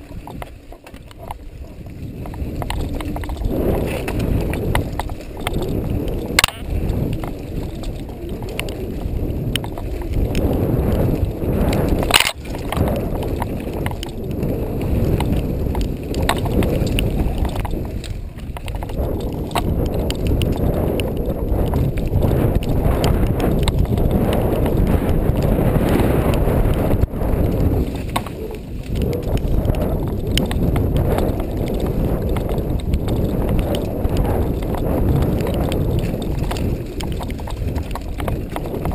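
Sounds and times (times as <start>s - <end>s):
bike rattling: 0.0s - 38.9s
tyres rumbling on dirt trail: 0.0s - 38.9s
wind on microphone: 0.0s - 38.9s.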